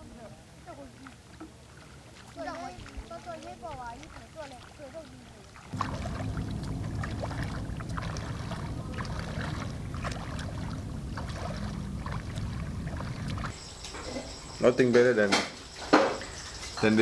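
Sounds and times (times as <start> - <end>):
sea water splashing: 0.7 - 13.6
low steady rumble: 5.7 - 13.5.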